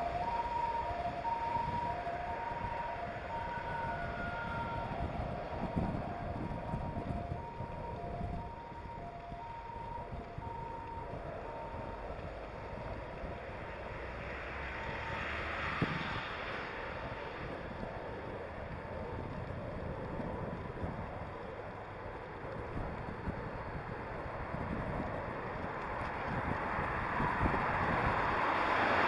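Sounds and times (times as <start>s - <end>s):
road noise: 0.0s - 29.0s
wind buffeting microphone: 0.0s - 29.0s.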